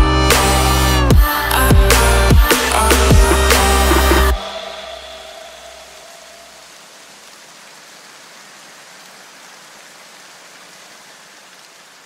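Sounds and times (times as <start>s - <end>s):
electronic music: 0.0s - 6.6s
rain hissing: 0.2s - 12.0s.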